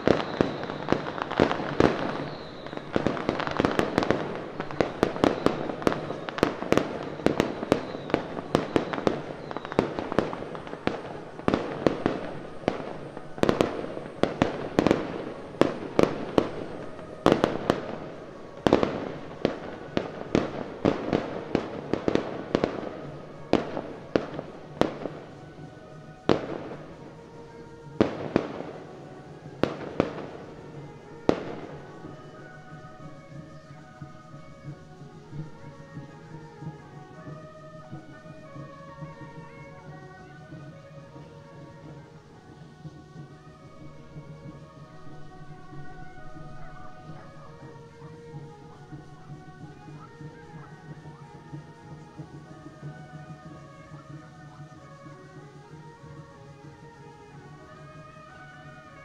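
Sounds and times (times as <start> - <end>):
faint music with steady tones: 0.0 - 59.0
firecrackers cracking: 0.0 - 59.0.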